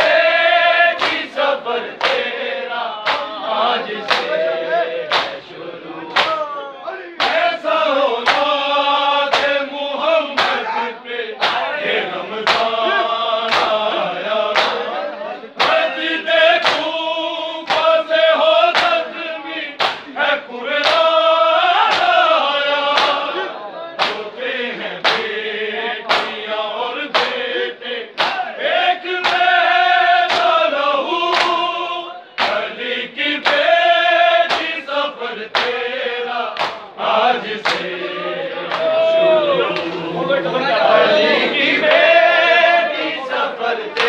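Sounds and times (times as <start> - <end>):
men chanting in chorus: 0.0 - 44.0
hands slapping chests: 0.9 - 1.4, 2.0 - 2.3, 3.0 - 3.4, 4.0 - 4.4, 5.1 - 5.4, 6.1 - 6.4, 7.2 - 7.6, 8.2 - 8.6, 9.3 - 9.6, 10.4 - 10.6, 11.4 - 11.7, 12.4 - 12.8, 13.5 - 13.9, 14.5 - 14.9, 15.6 - 15.9, 16.6 - 17.0, 17.6 - 18.0, 18.7 - 19.0, 19.8 - 20.1, 20.8 - 21.1, 21.8 - 22.2, 23.0 - 23.3, 24.0 - 24.3, 25.0 - 25.4, 26.1 - 26.4, 27.1 - 27.4, 28.1 - 28.5, 29.2 - 29.6, 30.2 - 30.6, 31.3 - 31.6, 32.3 - 32.7, 33.4 - 33.7, 34.4 - 34.8, 35.5 - 35.8, 36.6 - 36.9, 37.6 - 37.9, 38.7 - 39.0.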